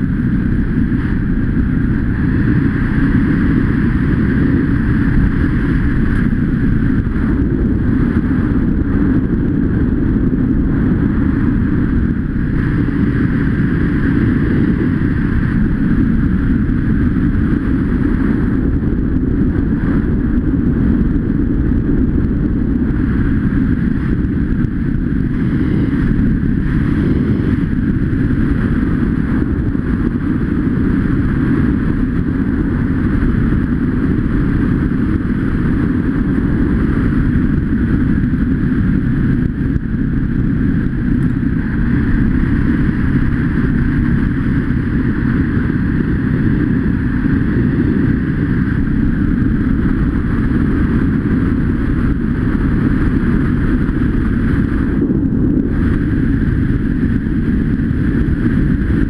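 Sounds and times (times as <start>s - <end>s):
dirt bike engine running: 0.0s - 59.0s
wind rush on microphone: 0.0s - 59.0s.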